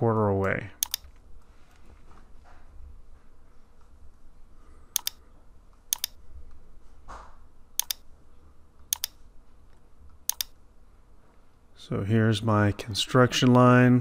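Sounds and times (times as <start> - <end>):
computer mouse double clicks: 0.8 - 1.0, 5.0 - 5.2, 5.9 - 6.2, 7.8 - 8.0, 8.9 - 9.2, 10.3 - 10.6.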